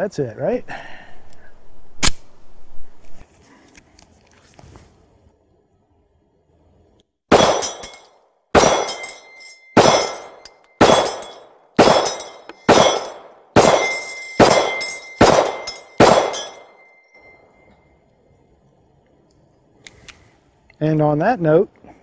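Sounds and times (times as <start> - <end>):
pistol shots: 7.3 - 8.0, 8.6 - 16.9
steel target ringing: 7.3 - 17.9.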